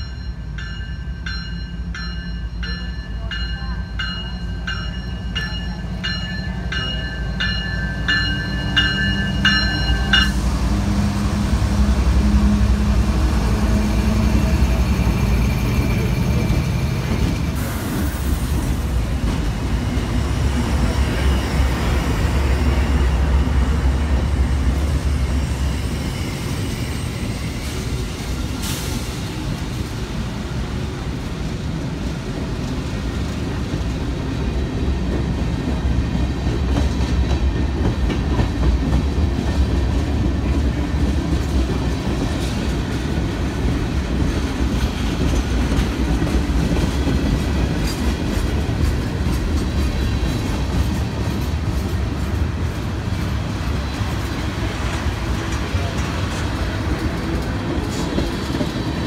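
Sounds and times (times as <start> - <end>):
locomotive bell ringing: 0.0 - 10.5
diesel locomotive engines rumbling: 0.0 - 59.0
train wheels rolling on rail: 0.0 - 59.0.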